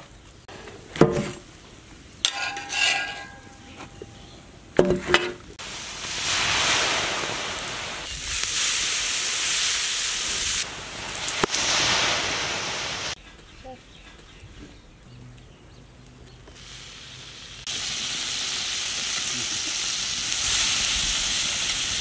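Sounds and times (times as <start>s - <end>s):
spatula clanking on metal griddle: 2.2s - 4.0s
water hissing into steam: 5.6s - 13.2s, 16.5s - 22.0s.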